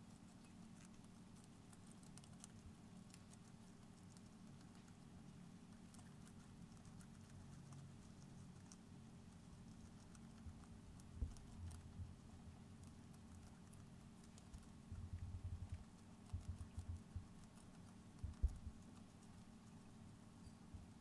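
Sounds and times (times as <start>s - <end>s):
hamsters crunching leaves: 0.0s - 20.1s
soft low thumps: 11.1s - 12.3s, 14.9s - 17.5s, 18.2s - 18.8s.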